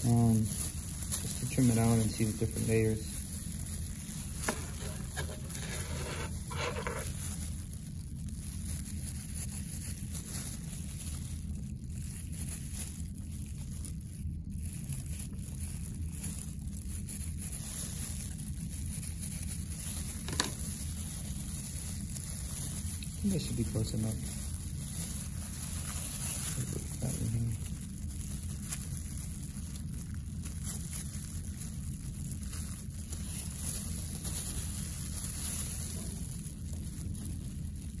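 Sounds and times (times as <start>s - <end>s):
low room hum: 0.0s - 38.0s
gloved hands handling: 4.0s - 7.4s, 19.8s - 22.8s.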